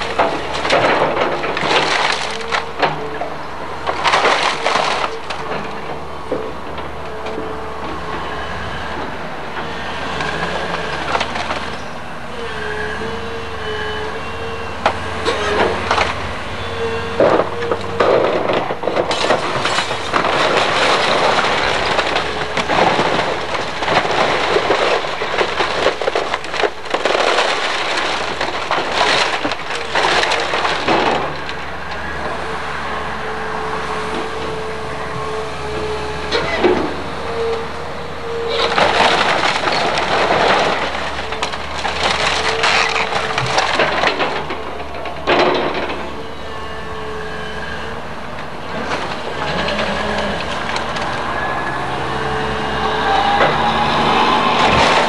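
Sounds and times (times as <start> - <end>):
wood cracking and crashing: 0.0 - 8.2, 9.8 - 12.0, 14.8 - 16.4, 17.2 - 33.2, 38.4 - 46.7, 48.0 - 55.0
excavator engine whine: 0.0 - 55.0.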